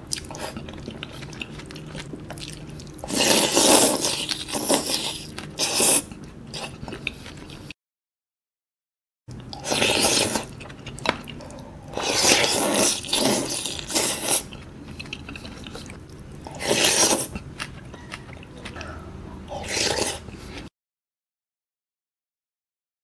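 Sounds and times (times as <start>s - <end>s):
wet chewing: 0.0s - 7.7s, 9.3s - 20.7s
noodles slurped: 2.4s - 6.8s, 9.5s - 10.6s, 11.5s - 17.4s, 19.5s - 20.7s.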